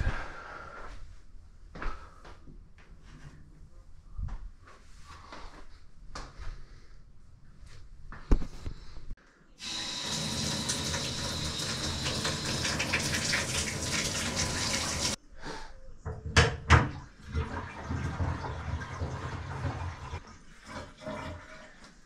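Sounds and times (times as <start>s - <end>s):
shower spraying water: 9.6s - 15.2s.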